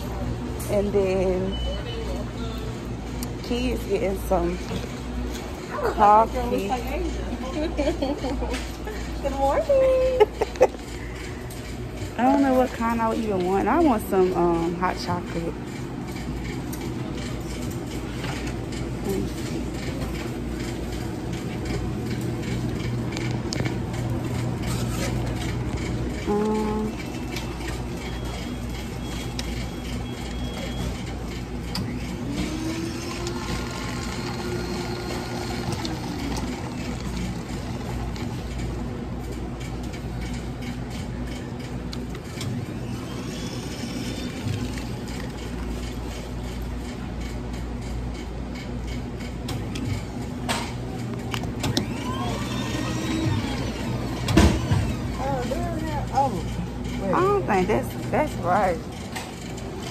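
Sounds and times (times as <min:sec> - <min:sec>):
low machine hum: 0:00.0 - 0:59.9.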